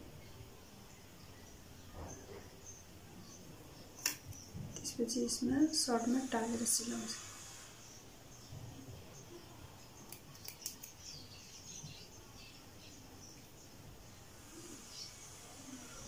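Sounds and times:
thread clippers snipping: 10.1s - 11.0s.

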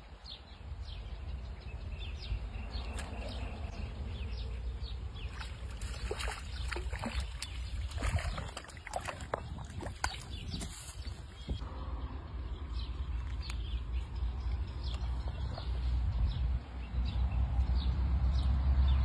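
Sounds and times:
fish splashing at water surface: 5.3s - 11.4s.

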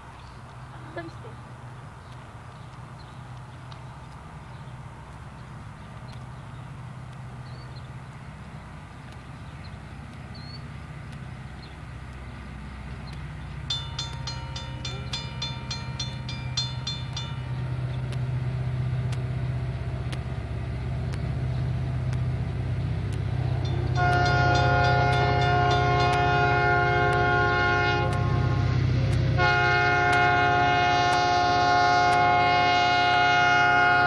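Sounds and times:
diesel locomotive engine rumble: 0.0s - 34.0s
locomotive air horn blasts: 23.9s - 34.0s.

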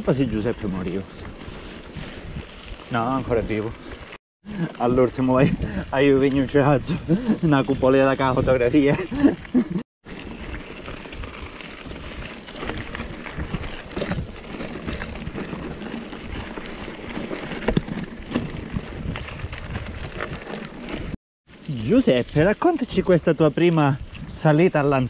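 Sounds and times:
bike clicks and rattles: 0.0s - 25.0s
bike tyre noise on dirt: 0.0s - 25.0s
wind rushing over microphone: 18.4s - 21.2s.

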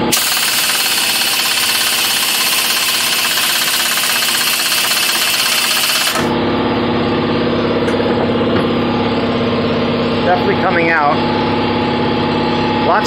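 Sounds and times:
impact wrench hammering: 0.0s - 6.3s.

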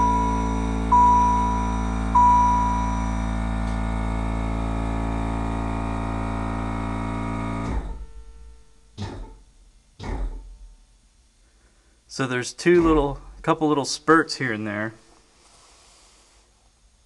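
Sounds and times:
chime dinging: 0.0s - 3.7s
electric vacuum pump humming: 0.0s - 9.4s.

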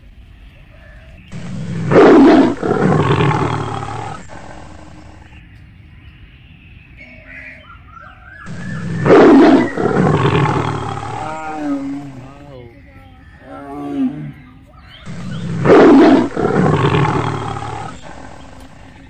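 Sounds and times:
tiger roaring: 1.3s - 5.4s, 8.5s - 12.5s, 15.0s - 19.0s.

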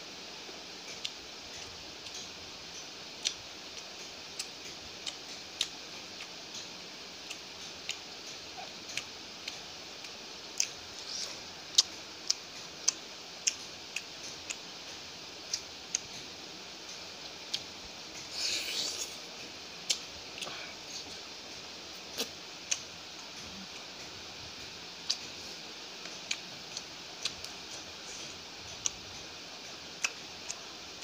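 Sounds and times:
steady hiss: 0.0s - 31.0s
person chewing food: 0.8s - 31.0s
wet mouth clicks: 8.9s - 14.6s.

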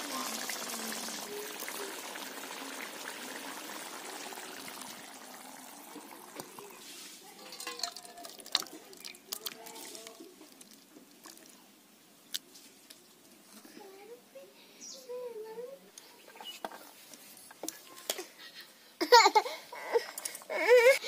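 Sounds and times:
thick curry pouring: 0.0s - 11.5s
curry simmering with hiss: 0.0s - 14.6s.

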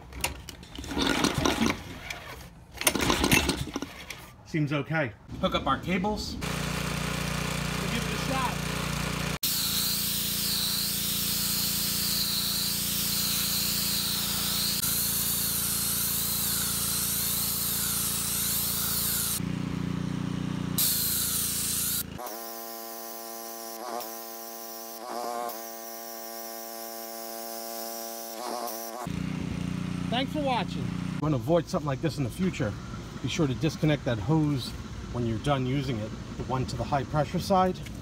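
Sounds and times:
small engine droning: 6.4s - 25.4s, 28.4s - 31.3s
high-pressure water jet hissing: 6.5s - 19.4s, 20.8s - 29.1s.

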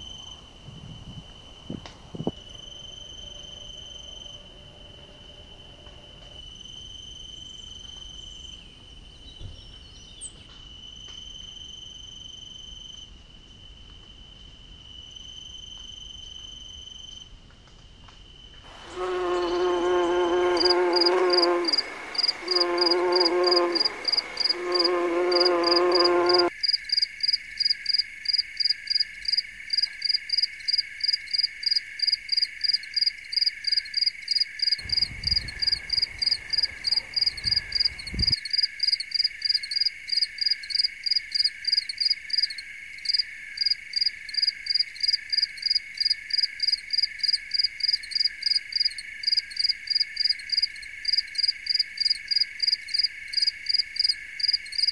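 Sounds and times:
crickets chirping: 0.0s - 17.3s, 18.2s - 54.9s
bumblebee buzzing: 18.7s - 26.5s.

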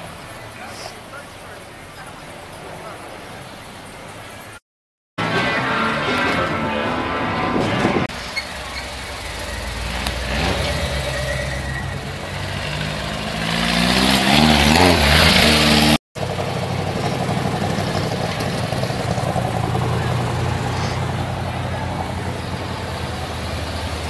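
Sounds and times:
car engines driving past: 5.2s - 24.0s
engine revving up: 5.2s - 24.0s.

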